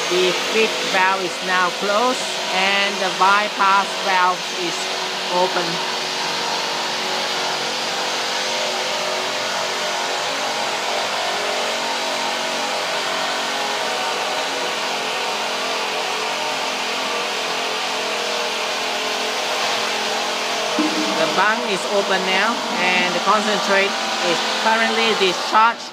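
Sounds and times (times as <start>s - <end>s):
machine whir: 0.0s - 12.6s, 20.7s - 25.3s.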